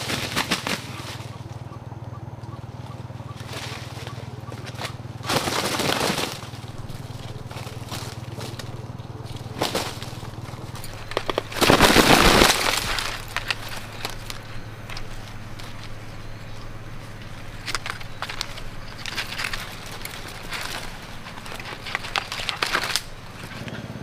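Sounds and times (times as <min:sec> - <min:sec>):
rooster flapping wings: 0:00.0 - 0:01.6, 0:03.4 - 0:16.1
rustling in dry leaves: 0:00.0 - 0:24.0.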